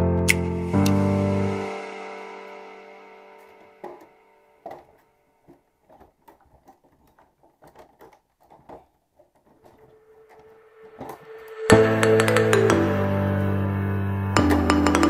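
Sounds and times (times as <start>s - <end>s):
background music: 0.0s - 4.8s, 10.0s - 15.0s
steady musical tone: 0.0s - 5.0s, 10.0s - 15.0s.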